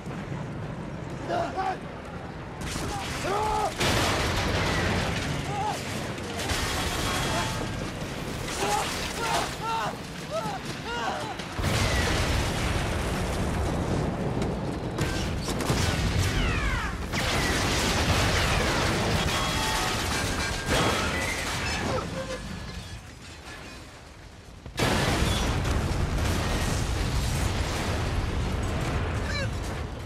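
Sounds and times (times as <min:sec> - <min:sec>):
explosions: 0:02.4 - 0:22.9, 0:24.6 - 0:30.0
debris crashing: 0:02.5 - 0:30.0.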